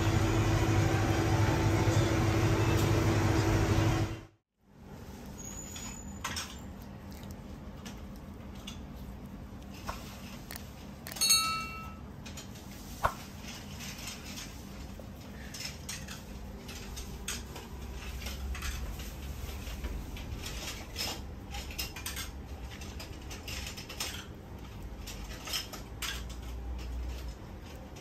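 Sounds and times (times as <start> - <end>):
spoon tapping bowl: 11.1 - 12.0.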